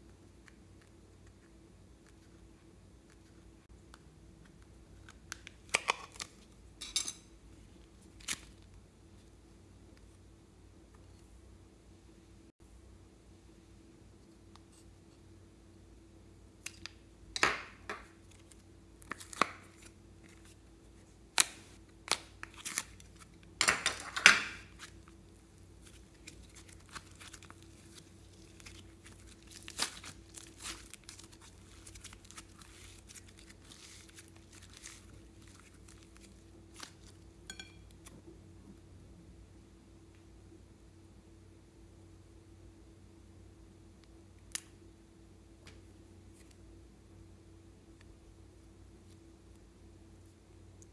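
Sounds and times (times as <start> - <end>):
plastic ripping and crinkling: 8.1 - 8.7, 25.8 - 37.2
soft crackles of slime handling: 24.6 - 38.2.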